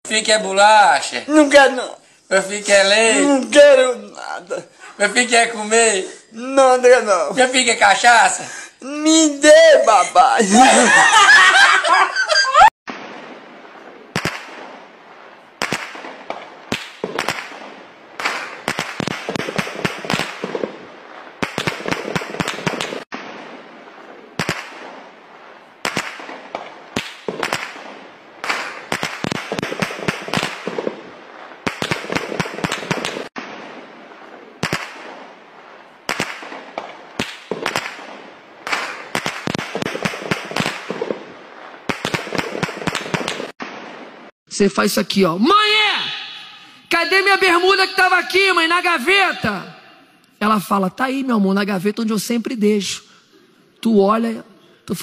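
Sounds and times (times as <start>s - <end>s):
rapid gunshot volleys: 14.1s - 14.8s, 15.6s - 23.6s, 24.4s - 25.1s, 25.8s - 33.9s, 34.6s - 35.4s, 36.1s - 44.2s.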